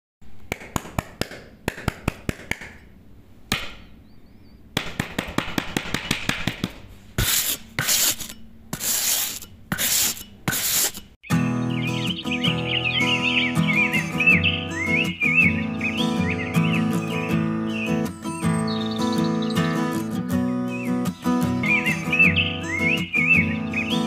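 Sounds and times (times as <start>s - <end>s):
trowel swish: 7.2s - 11.1s
trowel scraping cement: 7.2s - 11.2s.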